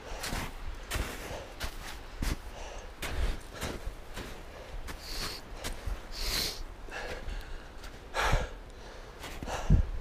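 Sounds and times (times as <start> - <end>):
footsteps in snow: 0.1 - 8.1
person breathing hard: 2.4 - 3.8, 4.5 - 10.0.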